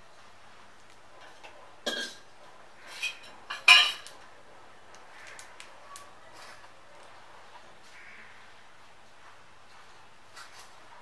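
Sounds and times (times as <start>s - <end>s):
faint clicks: 4.9s - 6.1s.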